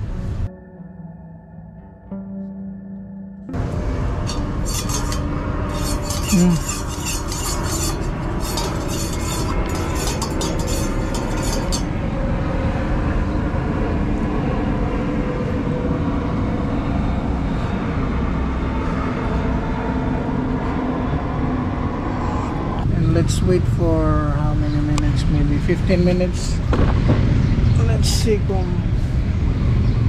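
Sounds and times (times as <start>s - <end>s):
spork stirring in metal mug: 4.2s - 11.9s.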